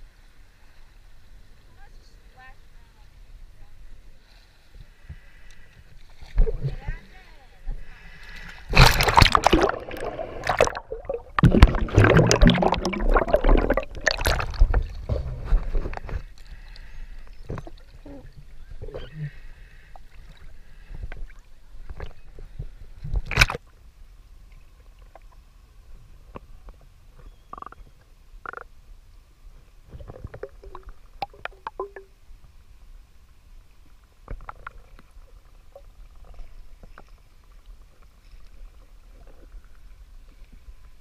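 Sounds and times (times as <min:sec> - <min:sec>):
faint underwater clicks and blips: 0:00.4 - 0:41.0
water splashing: 0:07.8 - 0:22.3, 0:29.9 - 0:32.2.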